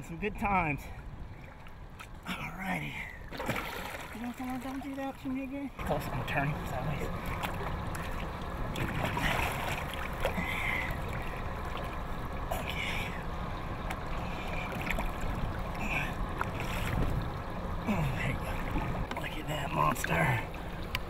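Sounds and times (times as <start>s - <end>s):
water sloshing at boat side: 0.0s - 21.0s
steady low background rush: 5.2s - 21.0s.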